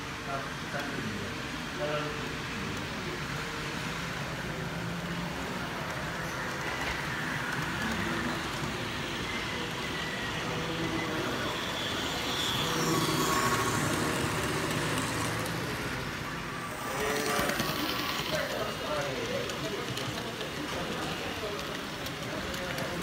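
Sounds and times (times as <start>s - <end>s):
model train rolling on track: 0.0s - 23.0s
faint motor whine: 5.8s - 19.0s.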